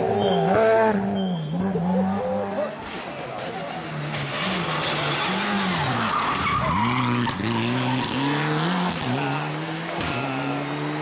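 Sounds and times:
rally car engine revving: 0.0s - 11.0s
tyres squealing on tarmac: 0.1s - 8.3s.

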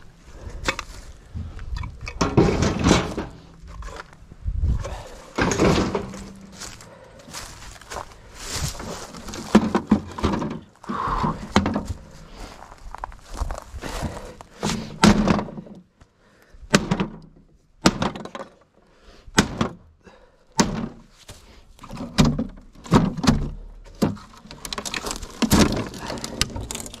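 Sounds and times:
heavy objects thumping: 0.6s - 12.2s, 13.4s - 15.7s.

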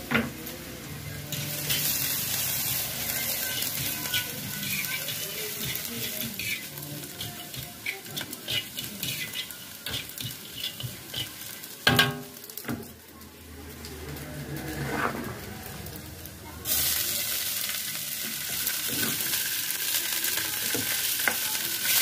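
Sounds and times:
meat sizzling in a wok: 0.0s - 22.0s
metal spatula scraping a pan: 1.3s - 12.2s.

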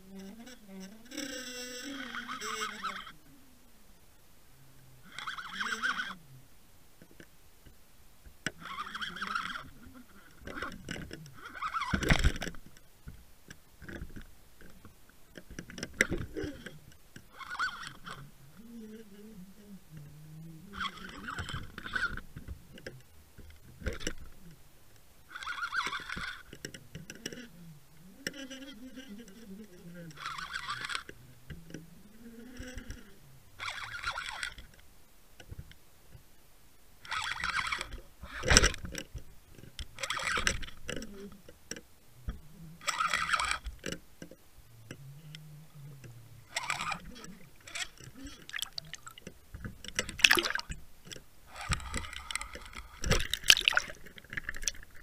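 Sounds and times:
short wavering squeaks: 0.0s - 3.7s, 4.9s - 6.4s, 8.6s - 12.6s, 15.8s - 24.6s, 25.3s - 34.8s, 37.0s - 39.1s, 39.9s - 41.5s, 42.2s - 55.0s
fish thrashing underwater: 46.5s - 55.0s
rushing water: 48.4s - 49.3s, 49.9s - 50.8s, 53.0s - 54.8s.

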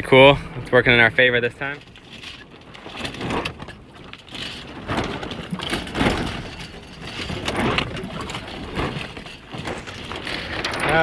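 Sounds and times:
low rumble: 5.1s - 11.0s.

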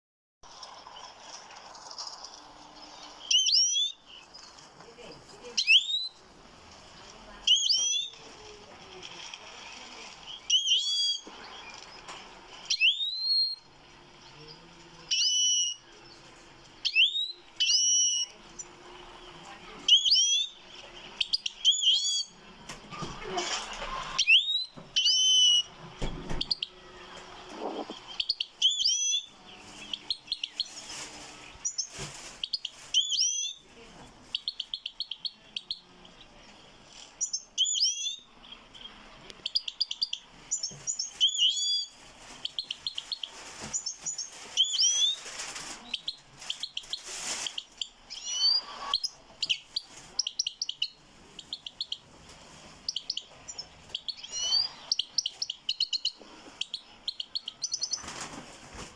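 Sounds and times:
finch singing twittering song: 2.8s - 6.2s, 7.4s - 8.2s, 10.3s - 12.0s, 12.7s - 16.2s, 16.8s - 22.5s, 24.1s - 33.6s, 34.3s - 45.2s, 45.9s - 52.0s, 52.8s - 58.1s.

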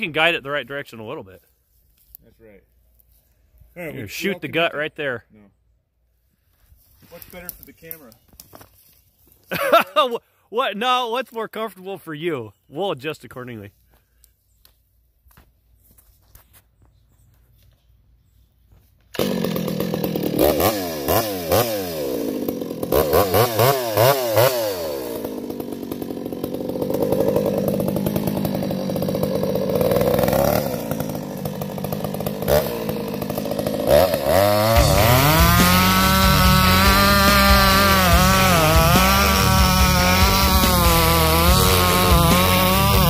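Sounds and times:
chainsaw revving: 19.1s - 43.0s.

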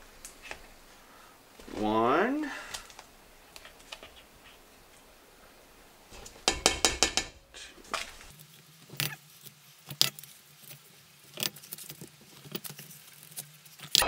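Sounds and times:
metal cup tapping steel pot: 6.4s - 7.4s.

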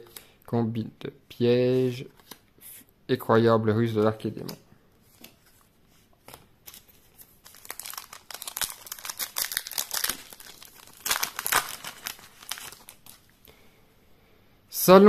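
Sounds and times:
foil wrapper crinkling and tearing: 7.4s - 13.3s.

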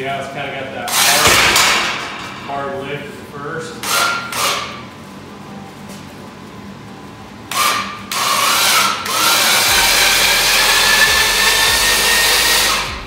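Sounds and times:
electric winch whining: 7.5s - 13.0s.

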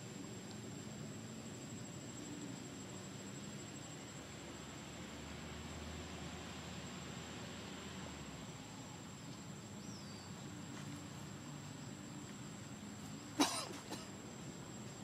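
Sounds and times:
faint background hiss: 0.0s - 15.0s
sharp cough-like sound: 13.4s - 14.1s.

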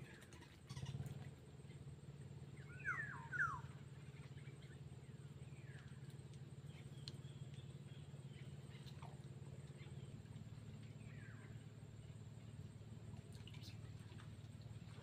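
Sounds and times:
steady low hum: 0.0s - 15.0s
bird calls sweeping downward: 2.6s - 3.8s.

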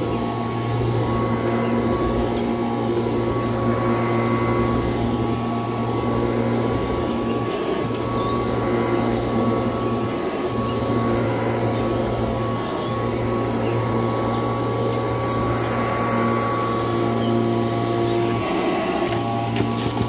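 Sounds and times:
upright vacuum cleaner running: 0.0s - 20.0s.

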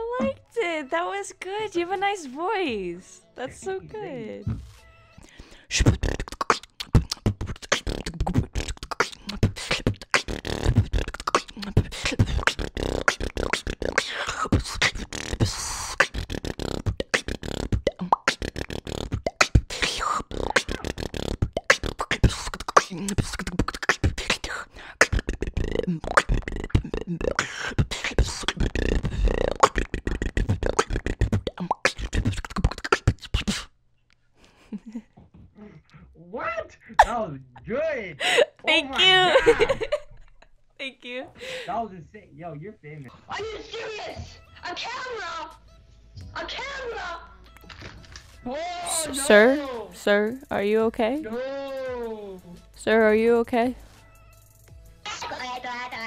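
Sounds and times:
woman beatboxing: 0.0s - 0.5s, 5.5s - 33.7s, 48.9s - 53.8s.

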